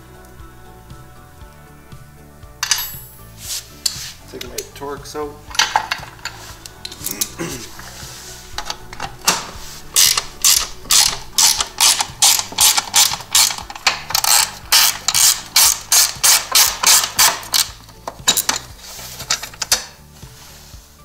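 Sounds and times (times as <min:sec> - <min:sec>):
hand ratchet clicking: 0:08.5 - 0:20.0.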